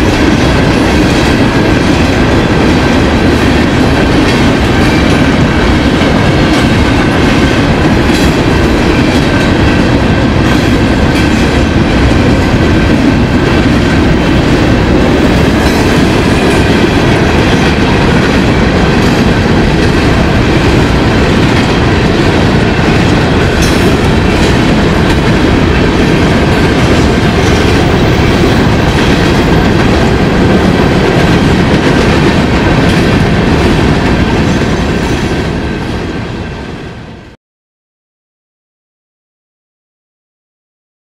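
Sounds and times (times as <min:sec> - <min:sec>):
train wheels rumbling on rails: 0:00.0 - 0:37.4.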